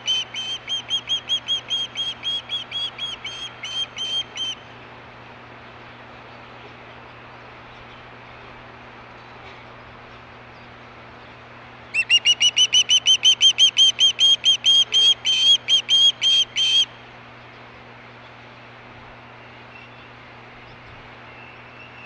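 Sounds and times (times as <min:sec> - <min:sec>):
osprey whistled chirps: 0:00.0 - 0:04.6, 0:12.0 - 0:16.9
faint background hum: 0:00.0 - 0:22.0.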